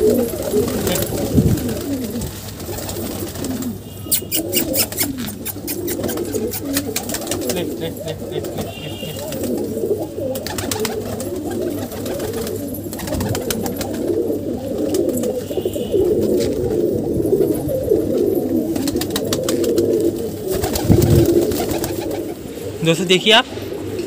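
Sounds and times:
pigeons cooing: 0:00.0 - 0:24.0
sharp clicks: 0:04.2 - 0:06.6.

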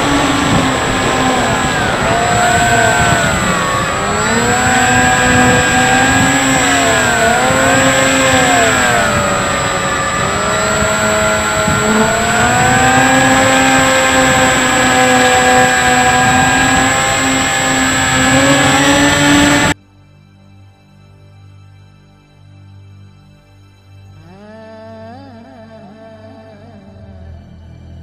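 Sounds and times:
electric motor and propeller whining: 0:00.0 - 0:19.8
rushing air: 0:00.0 - 0:19.8.

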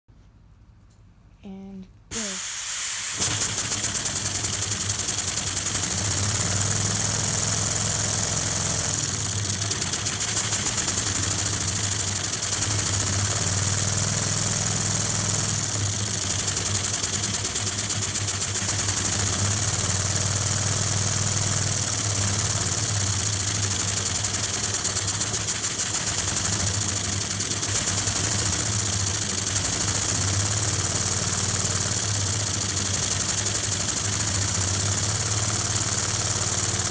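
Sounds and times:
steady air hiss: 0:02.1 - 0:07.1, 0:09.7 - 0:13.2.

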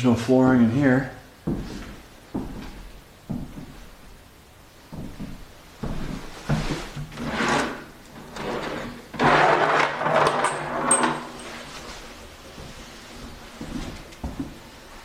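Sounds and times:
knocks and scrapes: 0:05.8 - 0:12.0
wooden drawer scraping open: 0:06.9 - 0:11.3.

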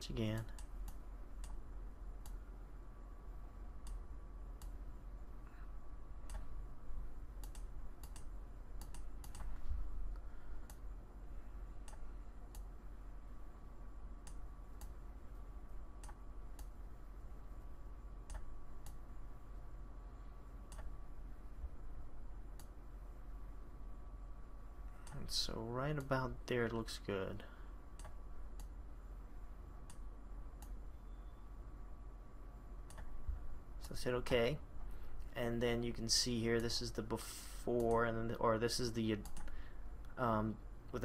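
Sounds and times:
steady low hum: 0:00.0 - 0:41.0
mouse and keyboard clicks: 0:07.4 - 0:09.6.

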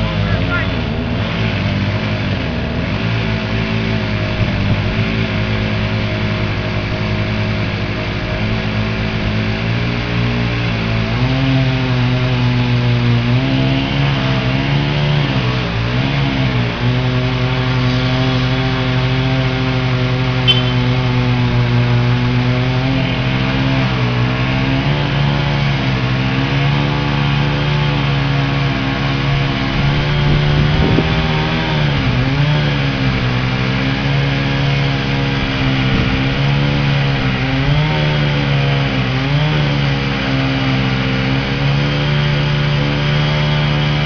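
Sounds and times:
engine running: 0:00.0 - 0:44.0
short click: 0:20.5 - 0:20.8.

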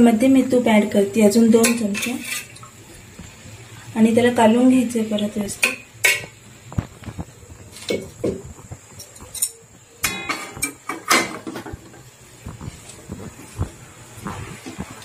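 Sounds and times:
metal spatula scraping wok: 0:01.6 - 0:02.6.

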